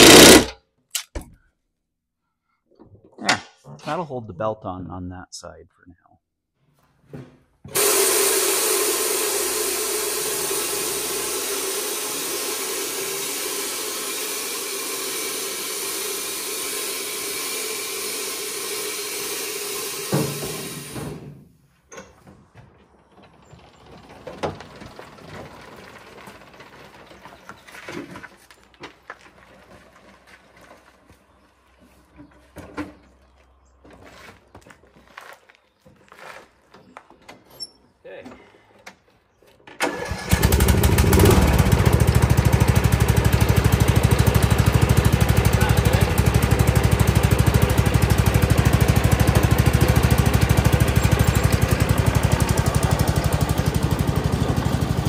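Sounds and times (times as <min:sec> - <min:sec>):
loud steady machine noise: 0:00.0 - 0:00.5, 0:07.8 - 0:21.2, 0:40.4 - 0:55.0
knocks and clatter: 0:21.9 - 0:30.7.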